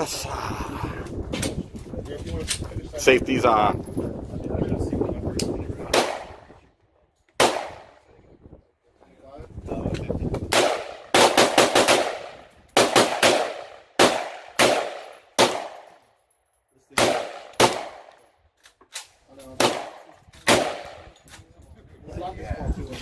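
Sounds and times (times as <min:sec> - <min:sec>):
rifle shots with echo: 0:05.8 - 0:06.4, 0:07.4 - 0:08.0, 0:10.5 - 0:16.0, 0:16.9 - 0:18.2, 0:19.4 - 0:21.2.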